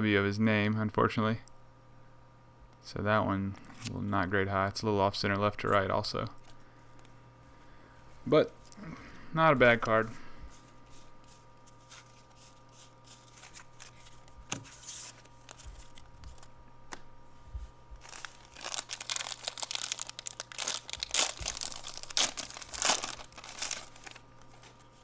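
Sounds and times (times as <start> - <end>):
wrapper tearing and crinkling: 18.0 - 24.8.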